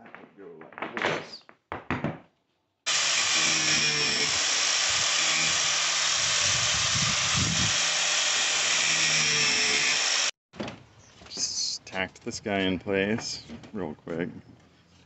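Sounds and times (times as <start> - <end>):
angle grinder grinding nails: 2.9 - 10.4.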